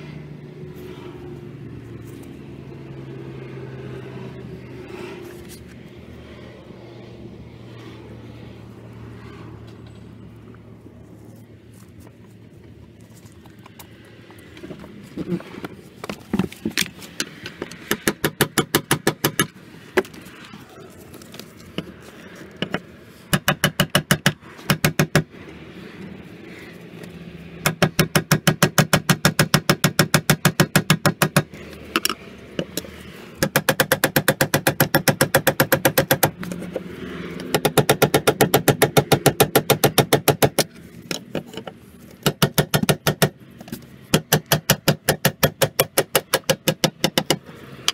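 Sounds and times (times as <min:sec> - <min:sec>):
rapid metal-on-metal tapping: 0:27.6 - 0:36.5, 0:37.4 - 0:47.9.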